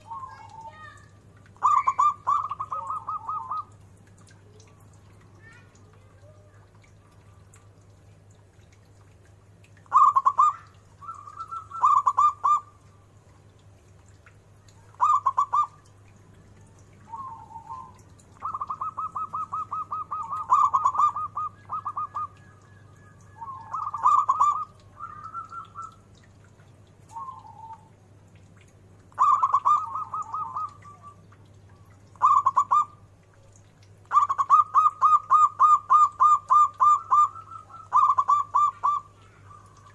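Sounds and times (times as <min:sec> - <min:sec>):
dove cooing: 0:01.6 - 0:03.8, 0:09.9 - 0:12.7, 0:14.9 - 0:15.9, 0:17.0 - 0:26.2, 0:27.1 - 0:27.9, 0:29.1 - 0:33.0, 0:34.1 - 0:39.9.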